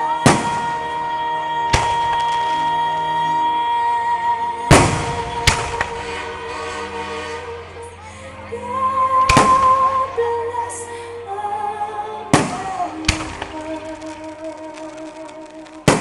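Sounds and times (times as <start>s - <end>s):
music playing: 0.0s - 16.0s
firework bangs: 0.2s - 1.0s, 1.6s - 2.8s, 4.7s - 7.4s, 9.2s - 10.0s, 12.3s - 16.0s.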